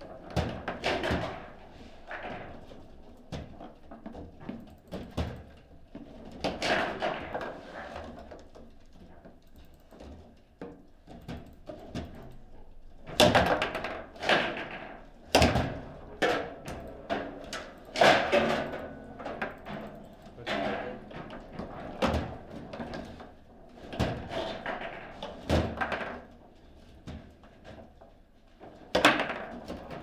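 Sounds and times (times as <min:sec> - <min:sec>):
table football ball clacks: 0:28.9 - 0:29.8.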